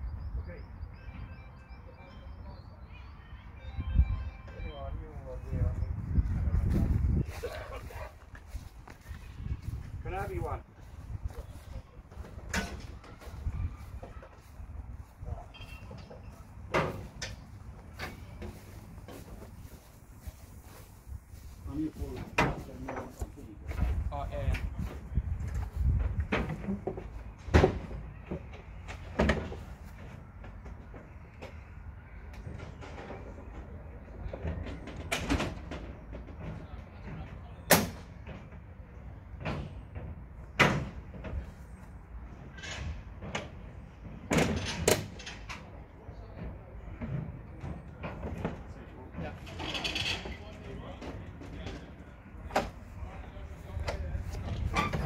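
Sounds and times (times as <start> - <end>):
metal panels clanking and banging: 15.6 - 19.4, 32.4 - 38.7, 39.4 - 41.6, 42.3 - 52.9.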